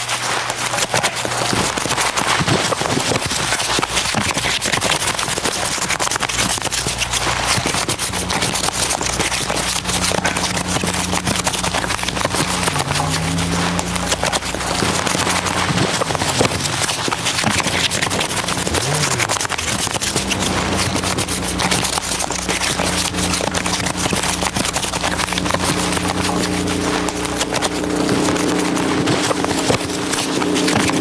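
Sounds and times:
low hum tones: 0:00.0 - 0:31.0
packaging crackling and clattering: 0:00.0 - 0:31.0.

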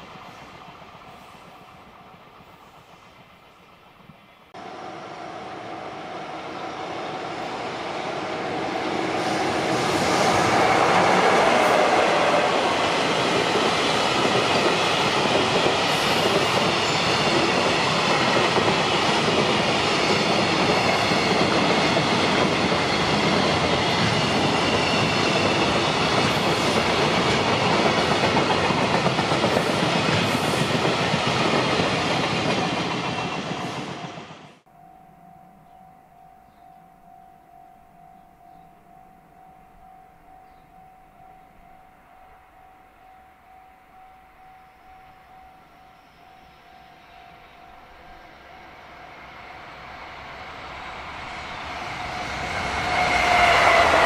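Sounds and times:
freight train wheels clattering: 0:09.1 - 0:34.4.

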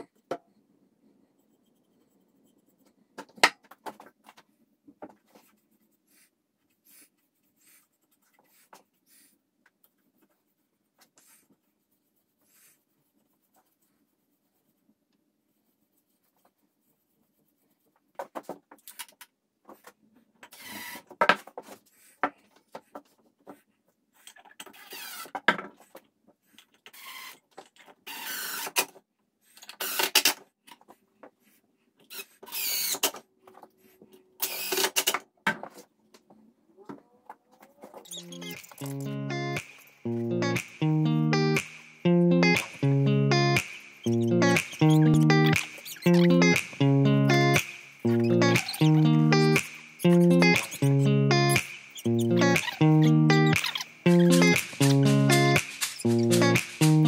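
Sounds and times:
cordless drill driving screws: 0:34.4 - 0:34.9.

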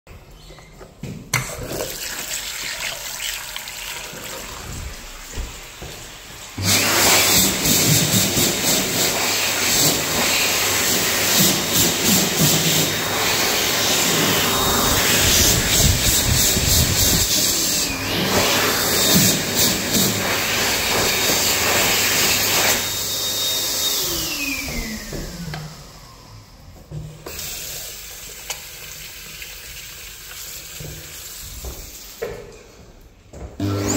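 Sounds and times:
water running: 0:01.4 - 0:09.2, 0:27.3 - 0:32.2
electric hand dryer blowing: 0:02.1 - 0:29.2, 0:33.6 - 0:33.9.

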